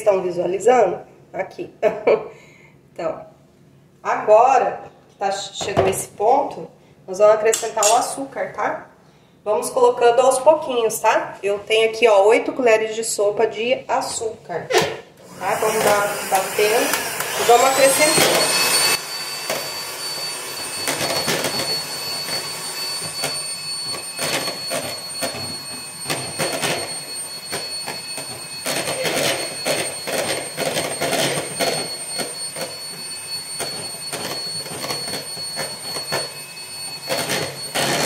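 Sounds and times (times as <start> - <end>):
electric hand mixer whining: 15.2 - 38.0.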